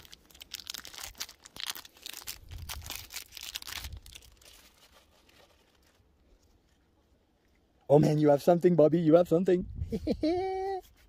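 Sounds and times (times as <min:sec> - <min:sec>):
foil wrapper tearing and crinkling: 0:00.0 - 0:06.7.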